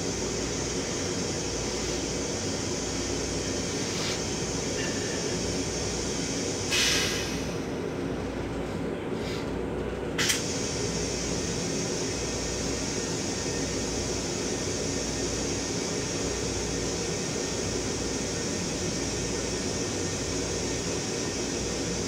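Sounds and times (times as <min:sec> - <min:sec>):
train low rumble: 0:00.0 - 0:22.0
sharp click: 0:10.2 - 0:10.4.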